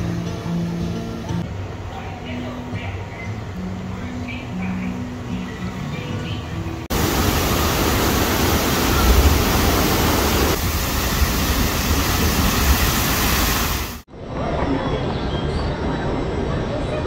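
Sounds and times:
fountain jetting water: 0:06.9 - 0:14.0.

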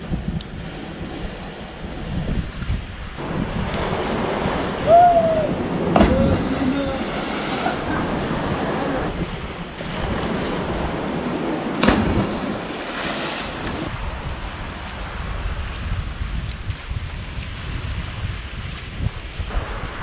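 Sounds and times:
wind on microphone: 0:00.0 - 0:20.0
surf breaking against cliff: 0:03.2 - 0:15.6.

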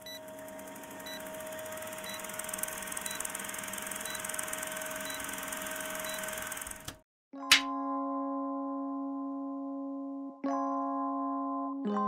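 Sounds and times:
projector hum: 0:00.0 - 0:06.9
film projector clatter: 0:00.0 - 0:07.0.

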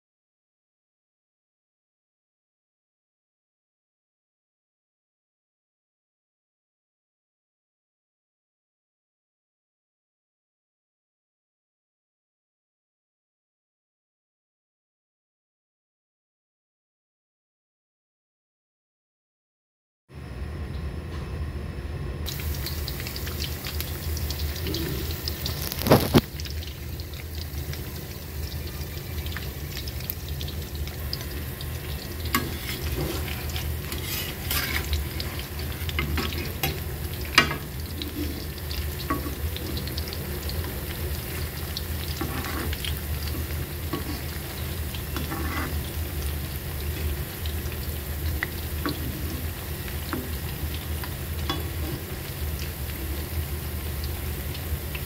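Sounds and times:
low hum: 0:20.2 - 0:54.1
food sizzling in hot oil: 0:22.3 - 0:55.0.

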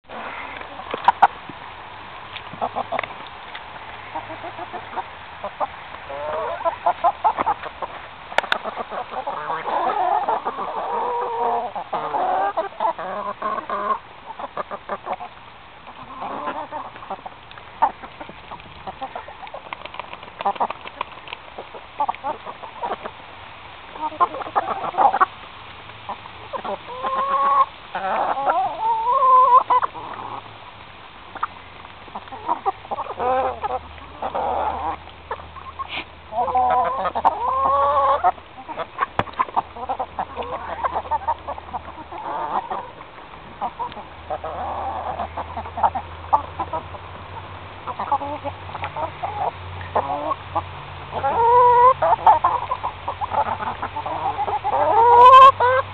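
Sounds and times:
hens clucking: 0:00.0 - 0:55.9.

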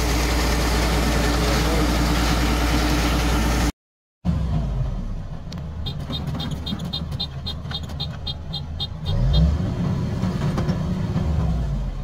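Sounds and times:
combine harvester diesel engine: 0:00.0 - 0:03.7, 0:04.3 - 0:12.0
rapid high chirps: 0:05.8 - 0:09.3.

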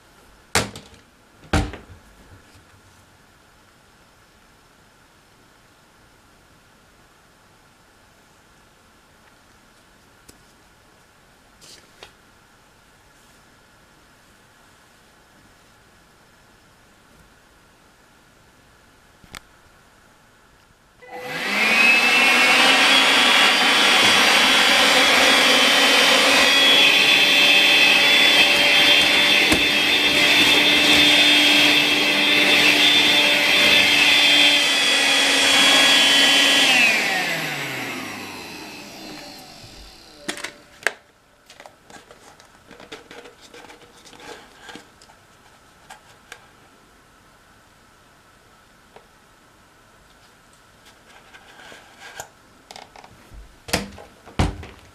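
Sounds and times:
vacuum motor whining: 0:21.0 - 0:40.7.

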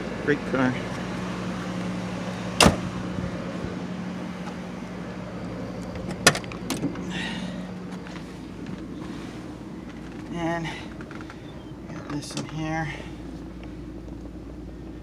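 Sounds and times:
steady low hum: 0:00.0 - 0:15.0
car door latch clicking: 0:02.6 - 0:02.8
car door shutting with a thump: 0:02.6 - 0:02.9.

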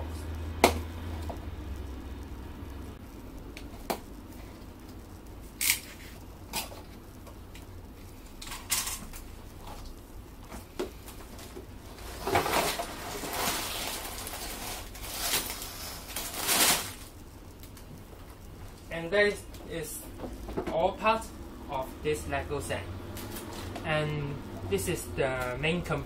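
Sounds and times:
plastic bags rustling: 0:11.0 - 0:17.8.

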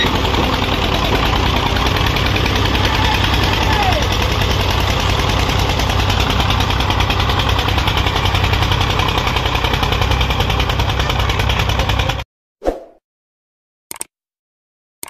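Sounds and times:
diesel tractor engine chugging: 0:00.0 - 0:12.2.

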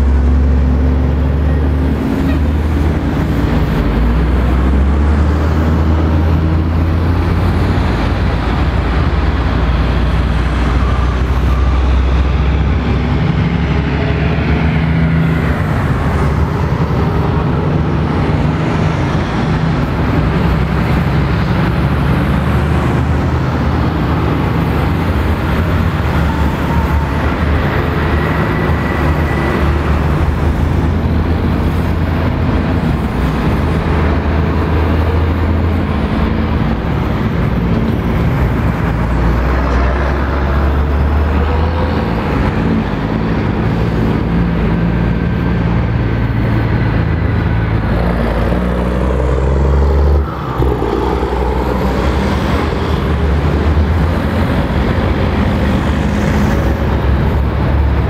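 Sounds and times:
lorry engines droning: 0:00.0 - 0:58.0.

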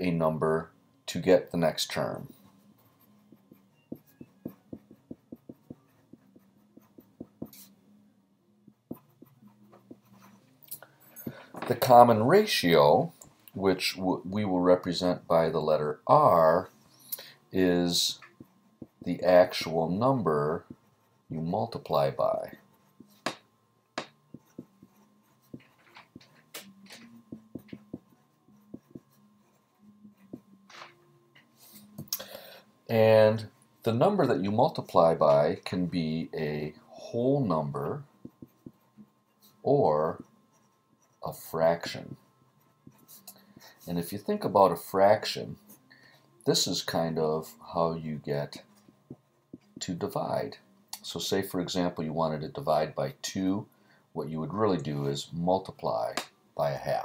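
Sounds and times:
pencil writing on paper: 0:02.3 - 0:07.8, 0:08.9 - 0:10.4, 0:18.2 - 0:19.7, 0:24.0 - 0:26.5, 0:27.3 - 0:30.5, 0:38.2 - 0:41.3, 0:42.6 - 0:43.8.

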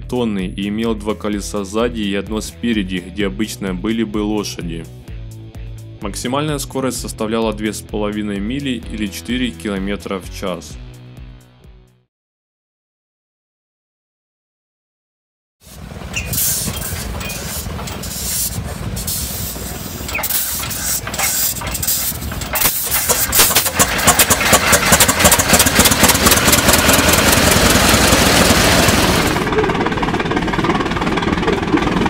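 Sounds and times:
tractor engine starting: 0:15.7 - 0:32.0.

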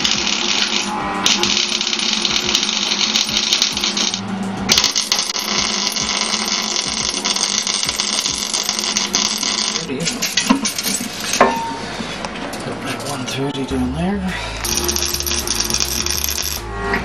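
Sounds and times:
arc welding crackle: 0:00.0 - 0:10.3, 0:14.6 - 0:16.6.

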